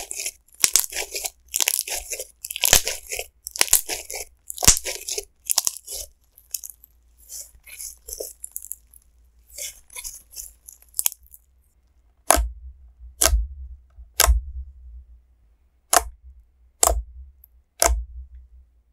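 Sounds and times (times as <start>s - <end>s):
slime crackling and squelching: 0.0s - 11.6s
sharp slime pops: 12.2s - 12.5s, 13.2s - 13.4s, 14.2s - 14.4s, 16.8s - 17.0s, 17.8s - 18.0s.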